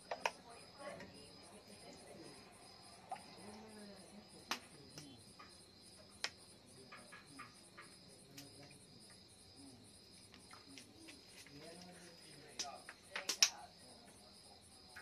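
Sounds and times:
crickets chirping: 0.0s - 15.0s
sharp clicks: 12.6s - 13.6s.

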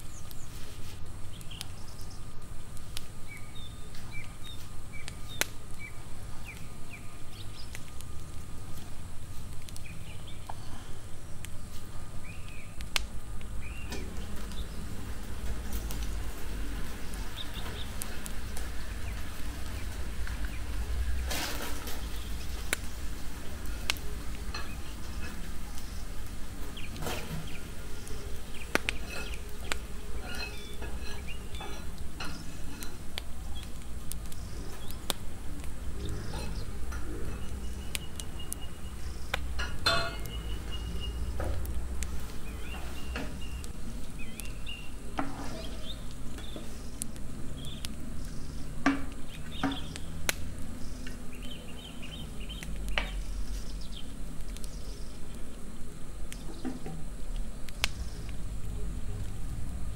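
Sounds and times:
meat and onion frying: 11.2s - 59.9s
wooden spoon stirring pan: 13.9s - 43.8s, 44.4s - 47.0s.

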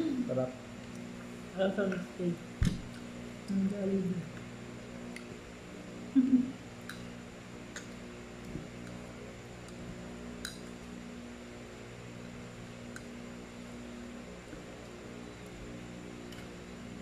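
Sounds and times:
low electrical hum: 0.0s - 17.0s
person humming: 6.2s - 6.6s.

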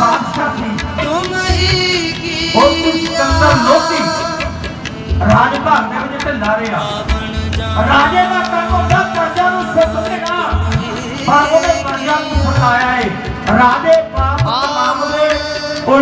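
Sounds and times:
person singing a melody: 0.0s - 4.9s, 6.8s - 16.0s
tabla strokes: 0.0s - 16.0s.

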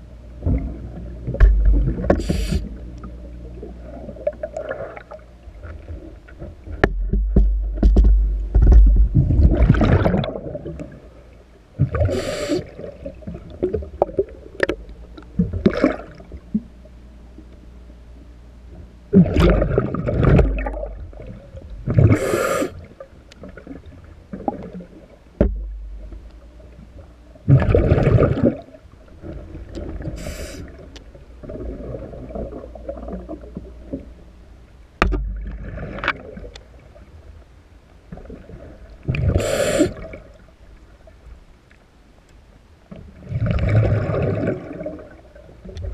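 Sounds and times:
exhaled bubbles underwater: 0.0s - 2.8s, 3.4s - 6.8s, 8.6s - 16.7s, 19.1s - 26.3s, 27.4s - 34.1s, 38.1s - 40.5s, 43.0s - 45.9s
regulator inhale hisses: 2.1s - 2.8s, 12.1s - 12.7s, 22.1s - 22.8s, 30.2s - 30.8s, 39.3s - 40.1s.

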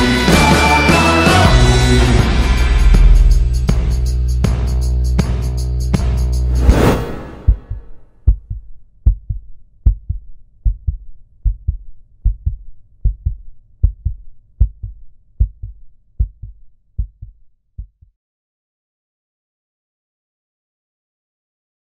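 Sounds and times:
heartbeat thumps: 7.3s - 18.2s.

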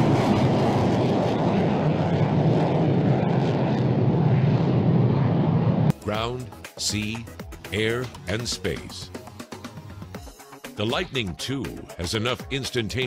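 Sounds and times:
jet engine roaring: 0.0s - 5.9s.

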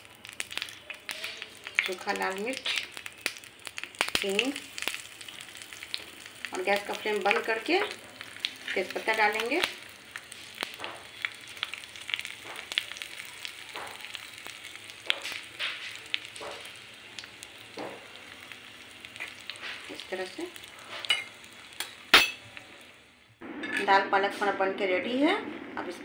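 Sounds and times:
crackling pops: 0.0s - 22.8s
spices sizzling in hot oil: 0.0s - 23.4s.

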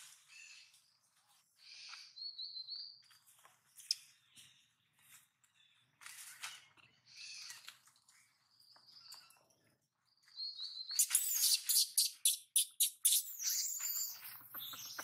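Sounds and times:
baby monkey squealing: 11.0s - 14.2s.

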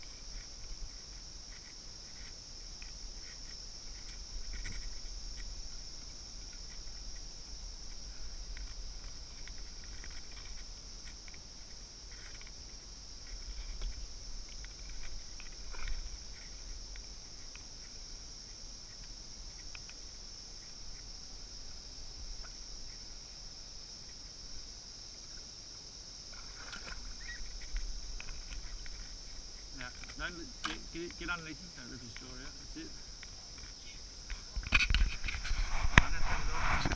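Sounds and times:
insect chorus droning: 0.0s - 36.9s.

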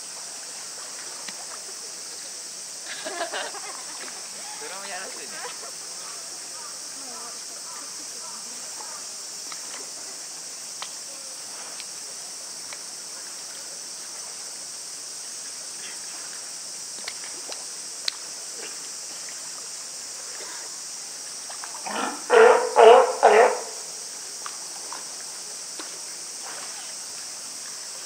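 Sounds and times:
steady high hiss: 0.0s - 28.0s
sea lion barking: 21.8s - 23.9s.

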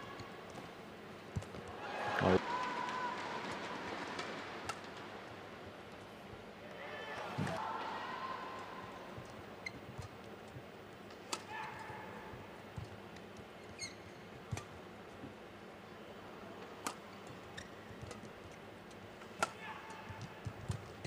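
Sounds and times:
faint arena hall noise: 0.0s - 21.0s
shoes squeaking on court: 9.6s - 10.3s, 13.5s - 14.7s, 17.1s - 18.6s.

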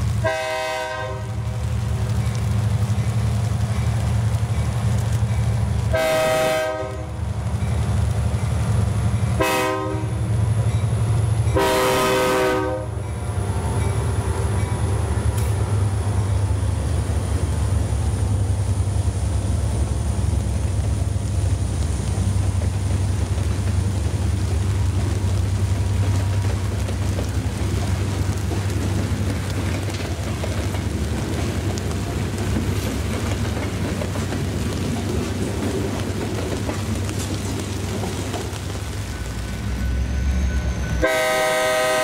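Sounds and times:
diesel locomotive engine drone: 0.0s - 42.0s
freight cars rolling on rails: 0.0s - 42.0s
train horn blasts: 0.2s - 1.6s, 5.9s - 7.2s, 9.4s - 10.2s, 11.5s - 13.0s, 40.5s - 42.0s.

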